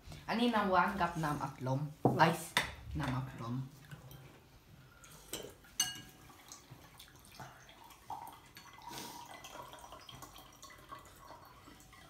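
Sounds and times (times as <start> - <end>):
glass clinking: 5.3 - 6.3.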